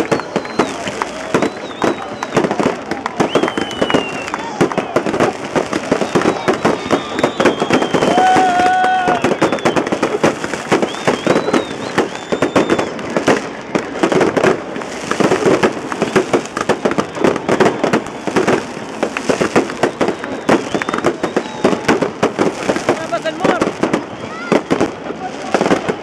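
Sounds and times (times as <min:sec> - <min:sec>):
fireworks bangs and crackles: 0:00.0 - 0:26.0.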